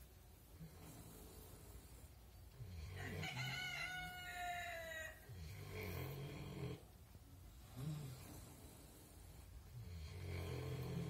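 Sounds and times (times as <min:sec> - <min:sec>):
pigs snoring: 0:00.6 - 0:03.5, 0:05.2 - 0:11.0
rooster crowing: 0:02.9 - 0:05.3.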